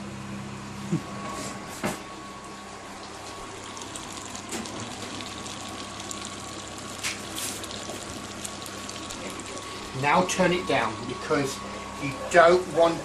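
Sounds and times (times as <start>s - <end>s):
butter sizzling in saucepan: 3.5s - 9.9s.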